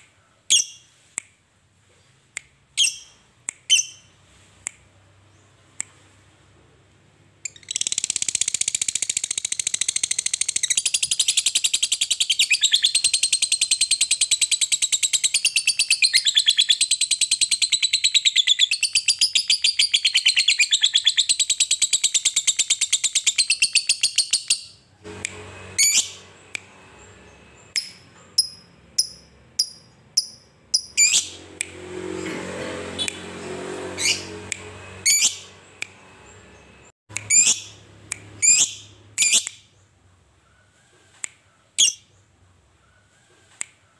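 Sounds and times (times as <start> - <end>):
lovebird chattering trill: 27.8 - 31.4, 37.2 - 37.8, 38.4 - 39.5.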